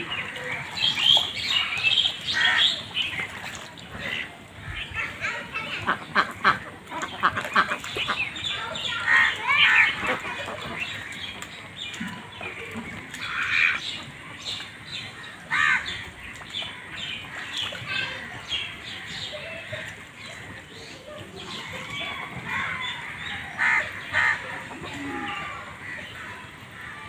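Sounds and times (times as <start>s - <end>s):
ducks quacking: 1.5s - 11.4s, 16.6s - 26.9s.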